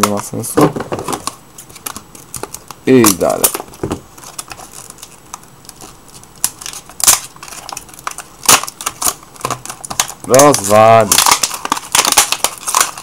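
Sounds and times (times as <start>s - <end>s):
plastic blister pack crinkling: 0.0s - 13.0s
sharp plastic snaps: 6.4s - 13.0s.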